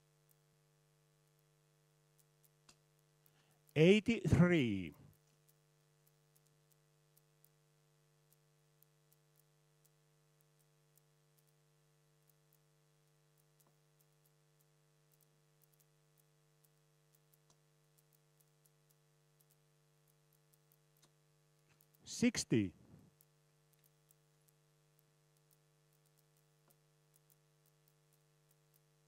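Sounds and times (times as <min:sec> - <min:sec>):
faint clicks: 0:05.1 - 0:07.6, 0:08.2 - 0:11.6, 0:12.2 - 0:22.0, 0:23.1 - 0:29.0.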